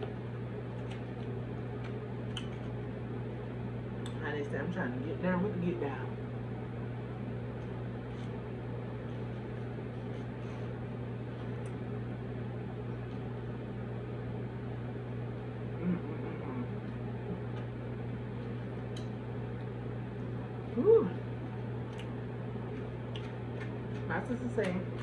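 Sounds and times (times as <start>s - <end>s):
low room hum: 0.0s - 25.0s
quiet eating sounds: 7.6s - 11.9s, 15.6s - 25.0s.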